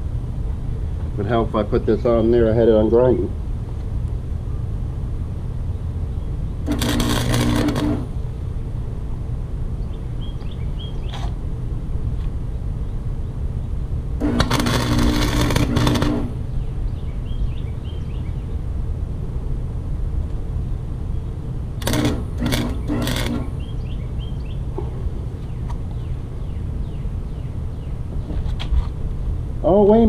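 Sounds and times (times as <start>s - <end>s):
steady low hum: 0.0s - 30.0s
welder crackling and hissing: 6.6s - 8.2s, 14.2s - 16.4s, 21.8s - 23.6s.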